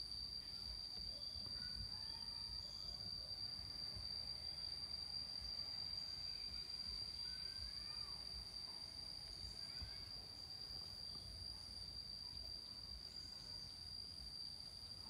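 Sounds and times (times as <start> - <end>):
faint rising chirps: 0.0 - 15.0
insects trilling: 0.0 - 15.0.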